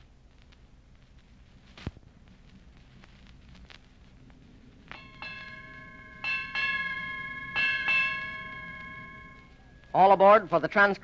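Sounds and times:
ship's bell ringing in pairs: 5.0s - 10.2s.

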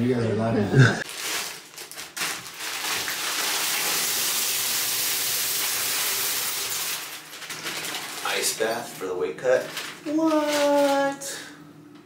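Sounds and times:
water running from bathtub tap: 3.0s - 7.2s.

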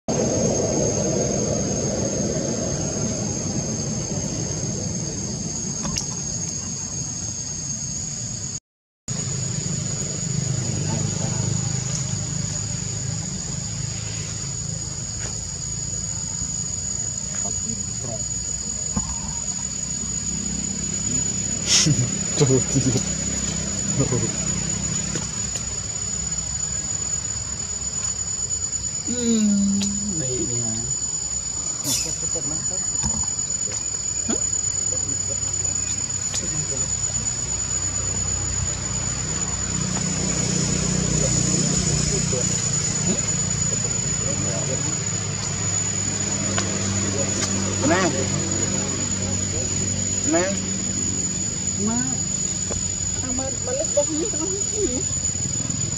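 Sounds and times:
low background rumble: 0.1s - 8.6s
high-pitched insect drone: 0.1s - 55.9s
high-pitched whine: 0.1s - 55.9s
low background hum: 9.2s - 55.9s.

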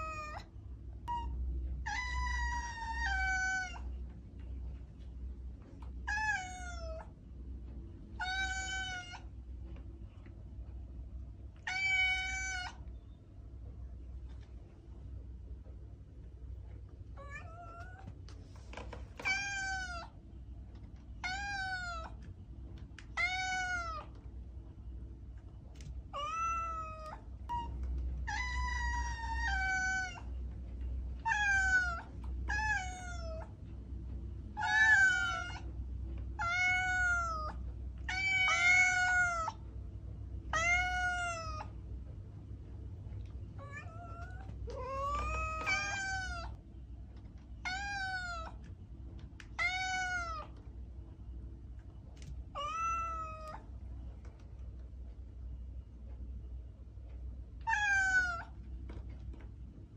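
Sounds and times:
cat meowing: 0.0s - 0.5s, 1.1s - 4.0s, 6.0s - 7.1s, 8.2s - 9.3s, 11.6s - 12.9s, 17.2s - 18.1s, 19.2s - 20.2s, 21.2s - 22.2s, 23.1s - 24.2s, 26.1s - 30.3s, 31.2s - 33.5s, 34.6s - 35.7s, 36.4s - 39.6s, 40.5s - 41.7s, 43.6s - 46.6s, 47.6s - 48.6s, 49.6s - 50.6s, 52.5s - 53.7s, 57.6s - 58.6s.

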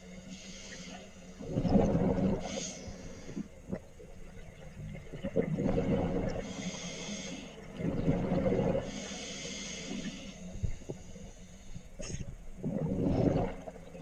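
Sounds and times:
hissing regulator inhalation: 6.4s - 7.6s, 8.9s - 12.2s
bubbling exhalation underwater: 12.0s - 13.8s.

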